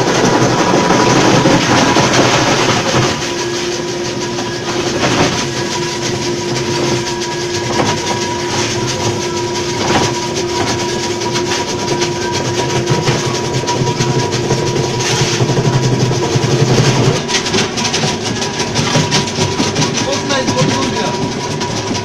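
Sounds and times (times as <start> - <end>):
ice crusher motor hum: 0.0 - 22.0
ice rattling clatter: 0.0 - 22.0.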